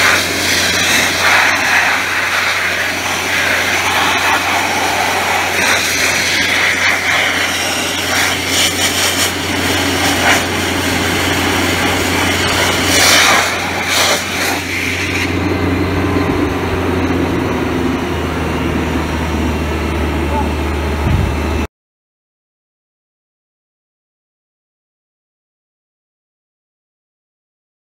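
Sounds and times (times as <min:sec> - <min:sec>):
blast nozzle hissing: 0:00.0 - 0:15.8
air compressor humming: 0:00.0 - 0:21.7.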